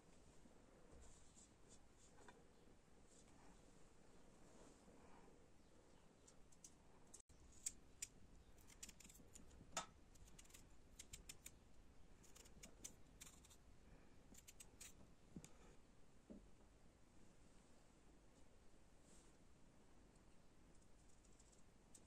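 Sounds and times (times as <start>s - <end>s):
knife paring potato skin: 7.4s - 11.6s, 12.2s - 13.6s, 14.3s - 15.0s.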